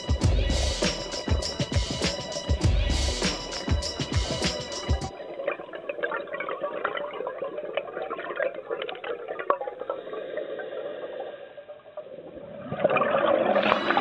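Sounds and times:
underwater air bubbles gurgling: 5.1 - 14.0.

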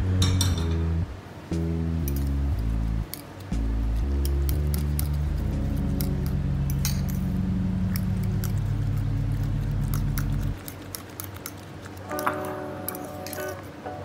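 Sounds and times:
background music with deep bass: 0.0 - 10.6
spoon scraping glass bowl: 12.1 - 13.7.

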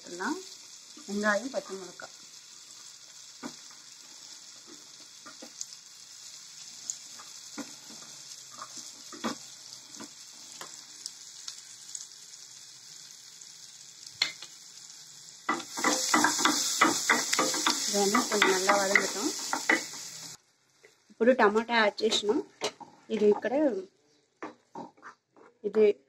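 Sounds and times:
onions sizzling in a pan: 0.0 - 25.2
spatula scraping a pan: 7.1 - 10.7, 15.5 - 20.3.

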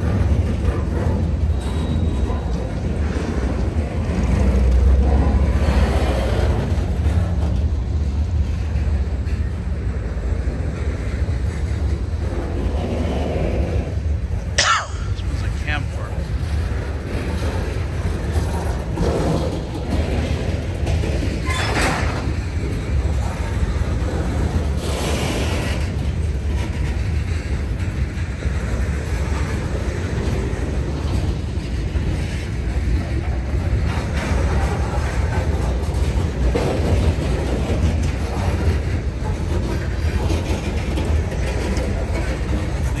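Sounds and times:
freight train rolling past: 0.0 - 43.0.

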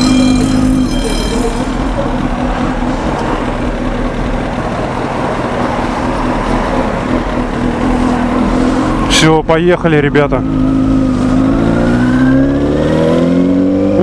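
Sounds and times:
motorcycle engine idling: 0.0 - 8.9
road traffic noise: 0.0 - 14.0.

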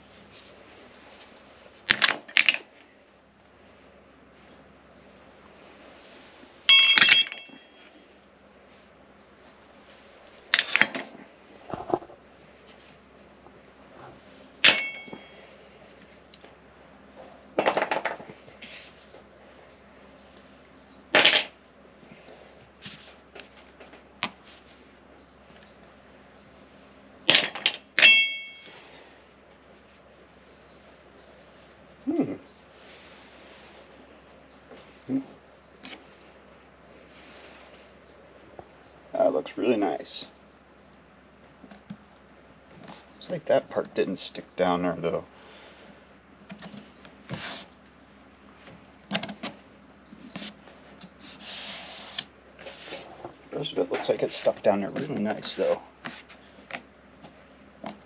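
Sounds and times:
metal weights clanking down: 6.7 - 7.8, 10.5 - 11.6, 14.6 - 15.4, 27.3 - 28.8.

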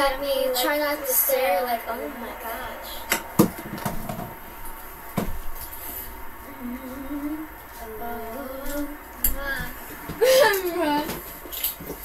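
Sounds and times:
person humming softly: 6.4 - 11.2.

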